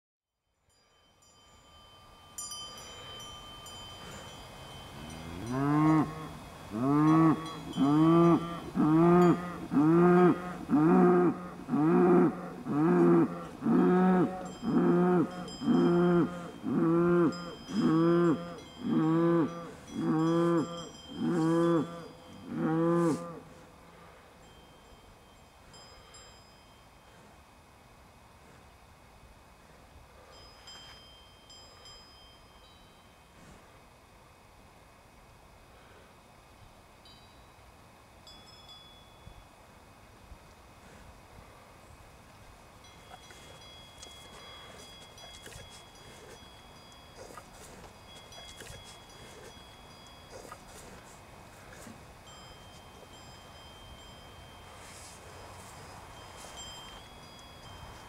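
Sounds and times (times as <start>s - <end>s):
faint cowbells ringing: 0.5s - 27.3s, 30.2s - 33.5s, 37.0s - 39.9s, 42.7s - 58.0s
cow lowing: 4.9s - 24.1s, 43.0s - 53.3s.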